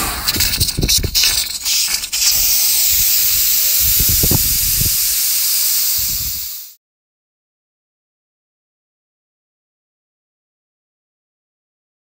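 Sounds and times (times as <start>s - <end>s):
pressure cooker hissing: 0.0s - 6.8s.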